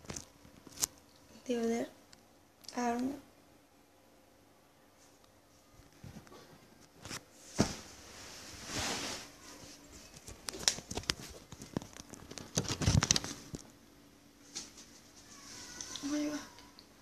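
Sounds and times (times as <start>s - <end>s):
rustling: 5.0s - 13.8s.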